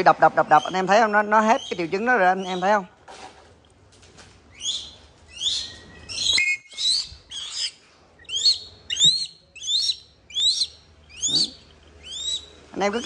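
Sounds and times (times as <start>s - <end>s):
hawk calling: 4.5s - 13.0s.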